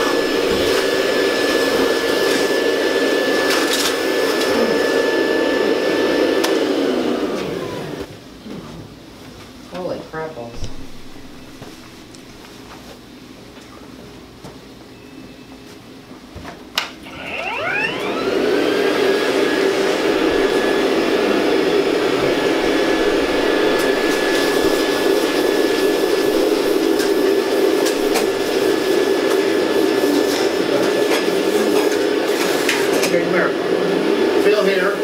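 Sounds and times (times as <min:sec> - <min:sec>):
vacuum cleaner motor whine: 0:00.0 - 0:08.1, 0:17.0 - 0:35.0.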